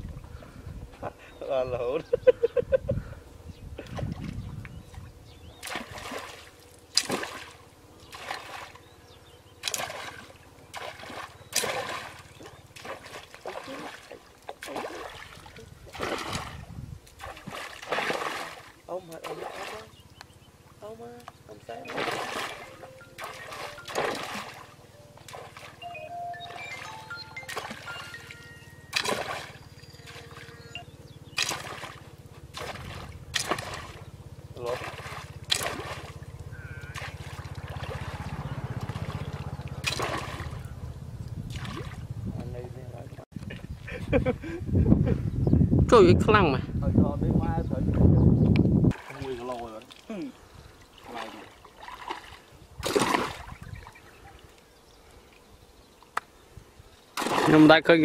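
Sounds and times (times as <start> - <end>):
low steady buzz: 0.0 - 43.2
muddy water splashing: 3.8 - 42.2, 48.9 - 56.2, 57.1 - 58.0.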